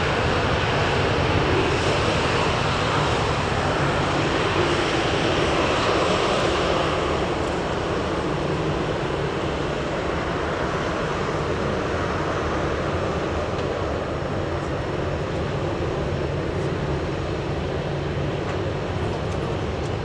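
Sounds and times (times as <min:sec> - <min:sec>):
jet turbines running: 0:00.0 - 0:20.0.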